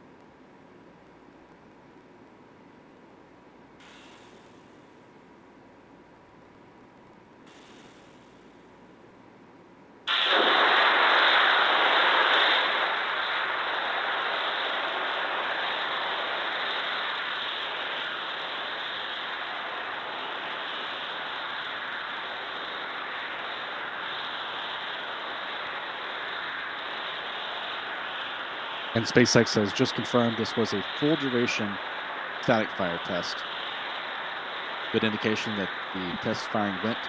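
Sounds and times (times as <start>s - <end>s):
rocket booster venting hiss: 3.8s - 5.0s, 7.4s - 8.7s, 10.1s - 37.0s.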